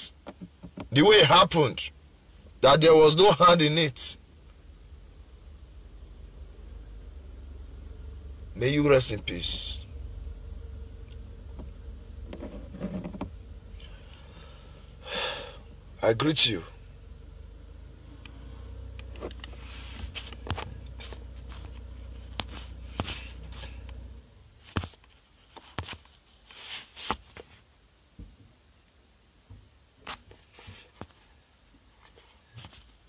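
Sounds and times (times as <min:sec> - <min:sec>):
low rumble in car cabin: 0:00.0 - 0:25.2
small clicks and rustles: 0:18.2 - 0:24.0, 0:24.6 - 0:27.6.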